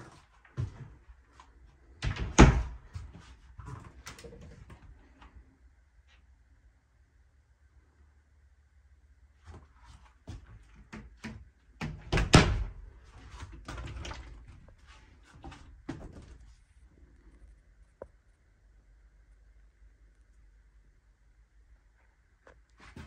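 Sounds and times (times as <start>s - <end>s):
wooden door knocks and thumps: 2.0s - 2.8s, 11.0s - 12.8s.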